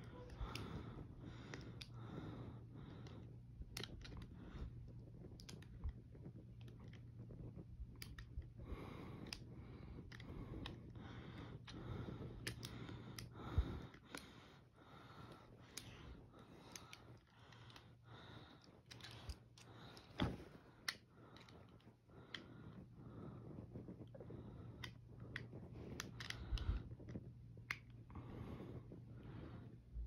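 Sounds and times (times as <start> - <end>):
steady low hum: 0.0 - 30.0
light clicks and taps: 2.9 - 14.4, 23.8 - 28.1.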